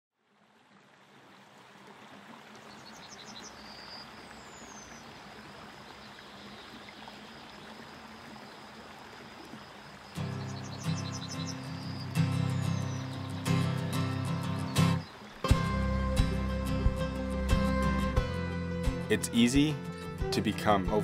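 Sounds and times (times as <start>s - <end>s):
rushing stream water: 0.2s - 21.0s
bird chirping quickly: 10.2s - 15.4s.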